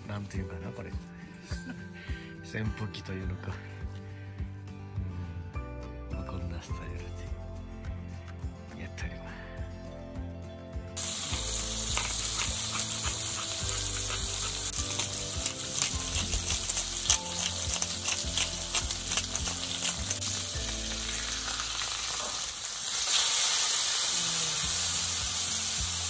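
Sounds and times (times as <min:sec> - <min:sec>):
steak sizzling in a frying pan: 0:11.0 - 0:26.0.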